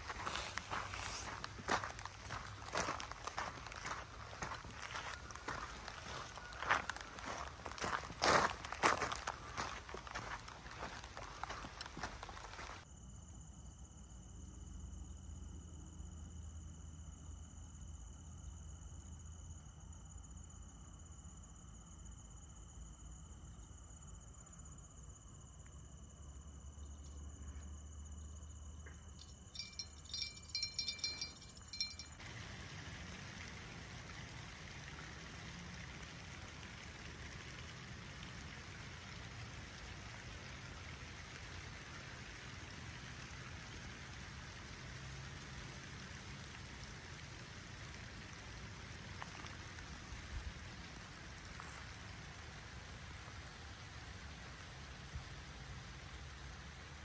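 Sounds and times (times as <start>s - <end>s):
rain on water: 0.0s - 12.9s, 29.2s - 57.0s
crickets chirping: 0.0s - 57.0s
small bell jingling: 29.2s - 32.2s.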